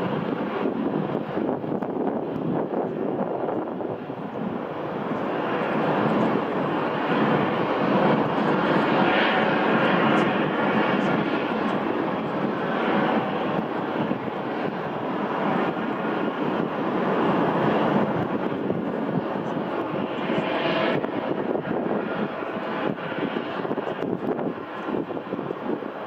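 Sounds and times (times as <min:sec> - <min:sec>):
jet engines running: 0:00.0 - 0:26.0.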